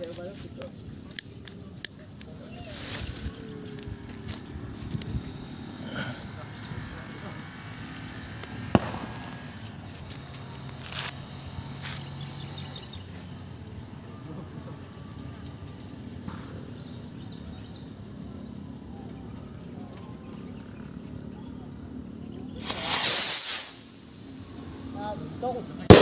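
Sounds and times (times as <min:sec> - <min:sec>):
insects chirping: 0:00.0 - 0:26.0
skyrocket launch hiss: 0:08.0 - 0:09.8, 0:22.6 - 0:25.0.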